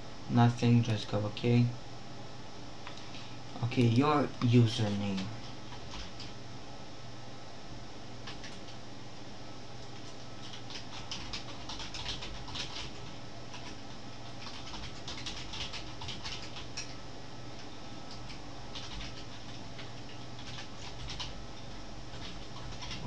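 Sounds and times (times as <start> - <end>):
steady low hum: 0.0 - 23.0
keyboard typing: 3.8 - 6.3, 8.2 - 8.8, 9.8 - 17.0, 18.1 - 21.4, 22.1 - 23.0.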